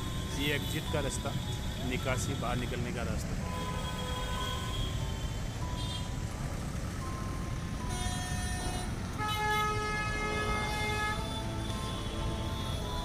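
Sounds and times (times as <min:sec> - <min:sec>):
rumble of passing vehicles: 0:00.0 - 0:13.0
car horn honking: 0:07.8 - 0:13.0.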